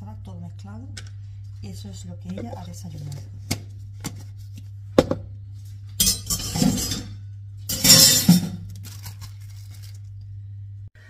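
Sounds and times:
steady low hum: 0:00.0 - 0:11.0
dishes and glassware clinking: 0:06.0 - 0:08.6.

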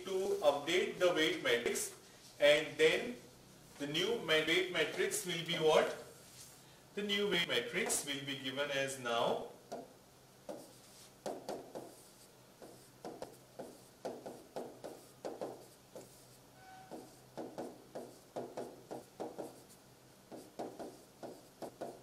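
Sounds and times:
stylus tapping on pen tablet: 0:12.6 - 0:16.2, 0:16.9 - 0:19.6, 0:20.3 - 0:22.0.

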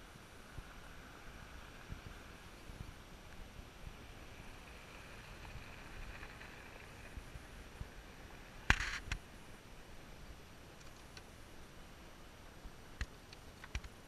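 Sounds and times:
vehicle rolling on gravel: 0:00.0 - 0:11.2.

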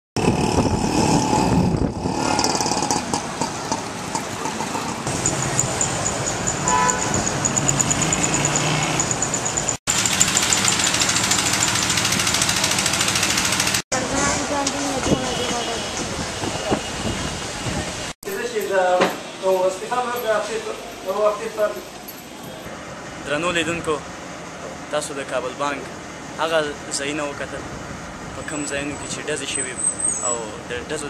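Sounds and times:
cars and motorbikes passing: 0:00.2 - 0:18.1.

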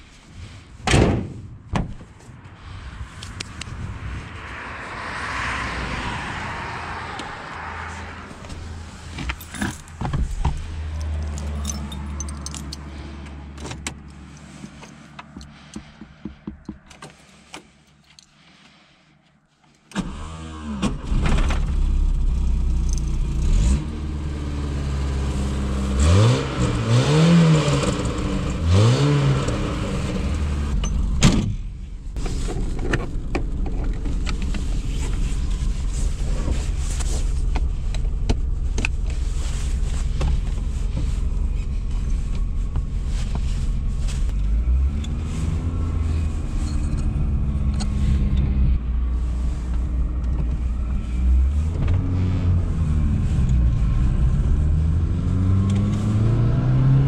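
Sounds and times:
car engine starting and idling: 0:02.5 - 0:19.0, 0:19.8 - 0:57.0
clicks and handling sounds: 0:08.3 - 0:18.4.

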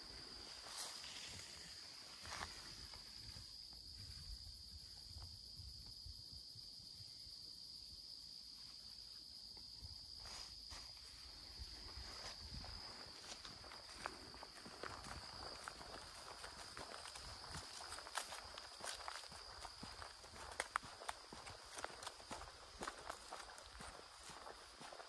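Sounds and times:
footsteps in grass: 0:00.0 - 0:04.5, 0:10.2 - 0:25.0
crickets trilling: 0:00.0 - 0:25.0.

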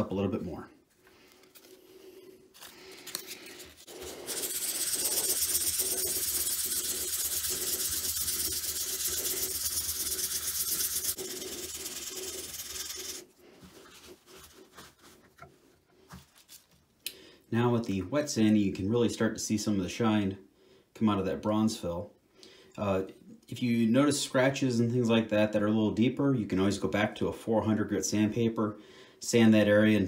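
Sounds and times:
sandpaper rubbing hiss: 0:02.9 - 0:15.2.

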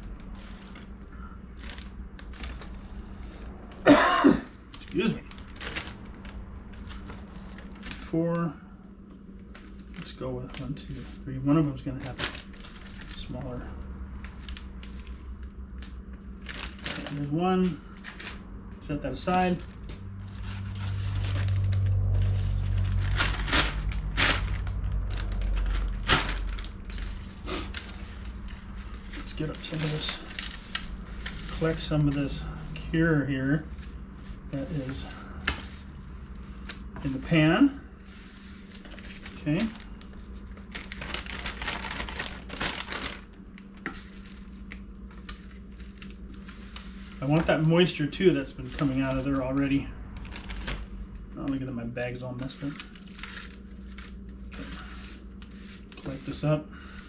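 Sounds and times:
plastic bag crinkling: 0:00.0 - 0:08.1, 0:09.3 - 0:51.6, 0:52.2 - 0:57.0
low steady rumble: 0:00.0 - 0:57.0
steady low hum: 0:00.0 - 0:57.0.

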